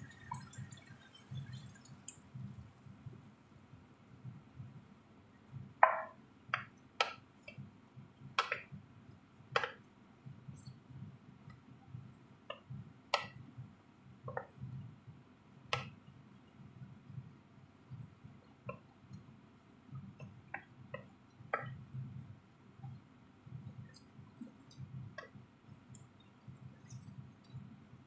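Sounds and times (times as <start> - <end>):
spoon knocking on pan: 5.8 - 7.2.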